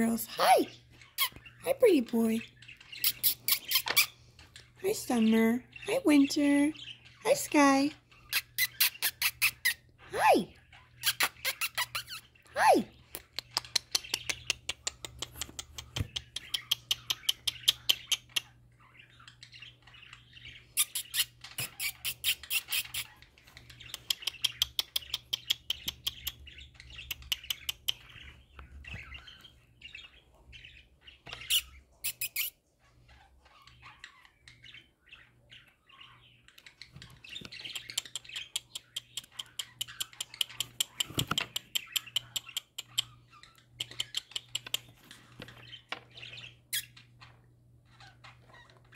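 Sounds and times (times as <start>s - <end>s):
budgerigars chattering and chirping: 0.0s - 48.9s.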